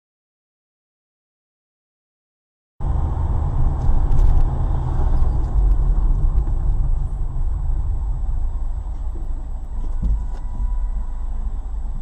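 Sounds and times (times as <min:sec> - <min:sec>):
car road and engine rumble: 0:02.8 - 0:12.0.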